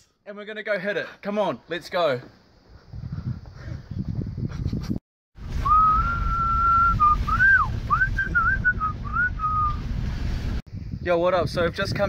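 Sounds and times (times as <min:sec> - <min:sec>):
car driving on dirt road: 0:05.5 - 0:10.6
person whistling a tune: 0:05.6 - 0:09.8.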